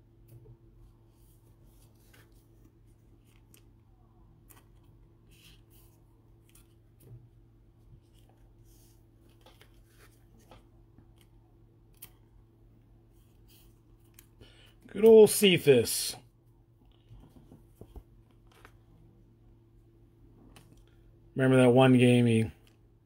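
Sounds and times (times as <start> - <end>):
low steady hum: 0.0 - 23.0
cards and plastic sleeves rustling: 1.0 - 7.1, 7.9 - 12.4.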